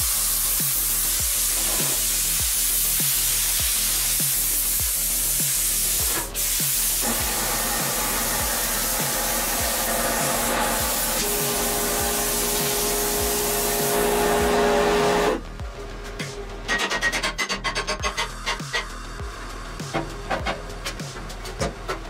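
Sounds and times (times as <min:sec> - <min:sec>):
plasma cutter hissing: 0:00.0 - 0:15.4.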